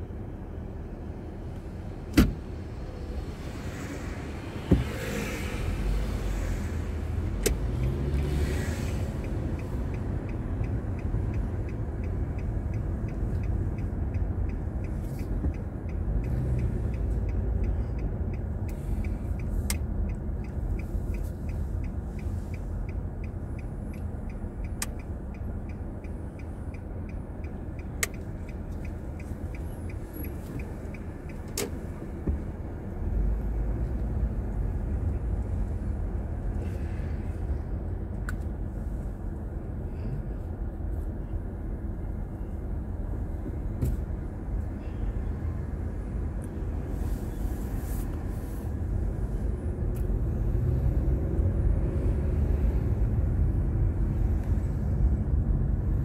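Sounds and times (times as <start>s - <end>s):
engine and road rumble: 0.0s - 56.0s
faint regular ticking: 9.2s - 31.8s.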